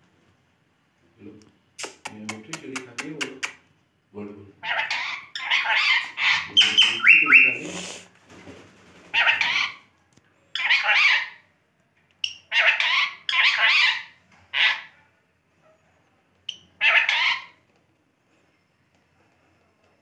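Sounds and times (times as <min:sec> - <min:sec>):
parrots squawking: 0:04.6 - 0:08.0, 0:09.1 - 0:09.9, 0:10.6 - 0:11.4, 0:12.2 - 0:15.0, 0:16.5 - 0:17.6.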